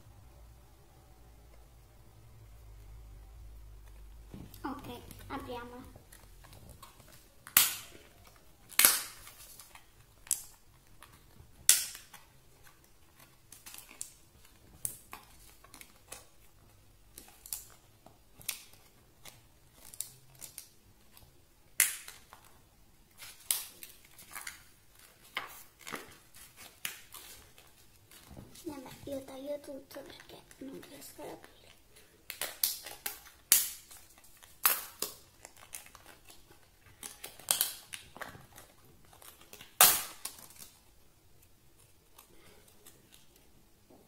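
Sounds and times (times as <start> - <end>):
plastic packaging cracking: 6.1 - 28.3, 32.2 - 41.0.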